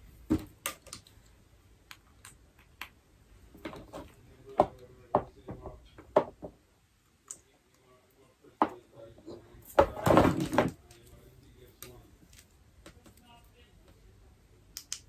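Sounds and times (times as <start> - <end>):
plastic parts clicking and knocking: 0.3 - 1.2.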